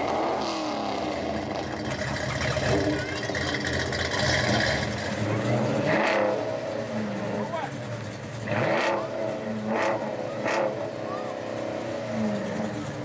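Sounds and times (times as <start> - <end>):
car engines rumbling: 0.0 - 13.0
voices: 4.9 - 13.0.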